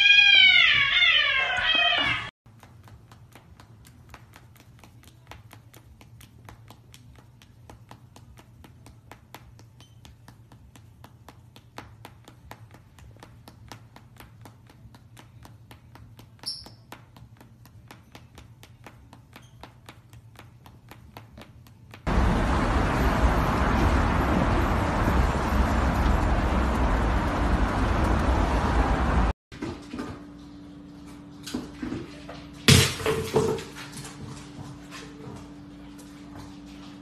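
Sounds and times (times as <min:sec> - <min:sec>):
bird squeak: 0:16.4 - 0:16.8.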